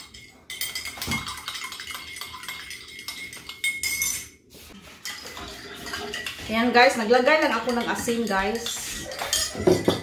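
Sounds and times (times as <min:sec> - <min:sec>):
spoon clinking in ceramic mug: 0:00.0 - 0:04.4, 0:07.5 - 0:10.0.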